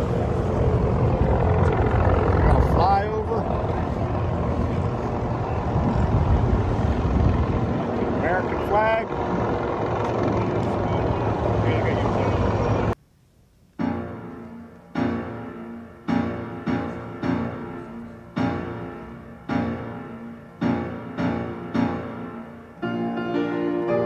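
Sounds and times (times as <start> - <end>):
slow piano chords: 13.8 - 24.0.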